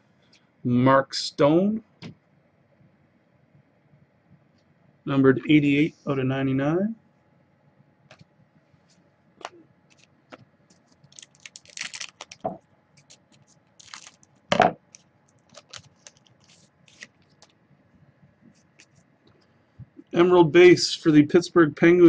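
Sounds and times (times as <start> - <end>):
card wrapper crinkling: 10.7 - 17.5.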